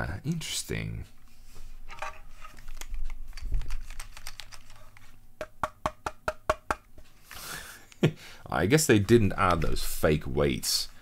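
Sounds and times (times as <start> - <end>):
keyboard clicks and knocks: 2.0 - 6.8.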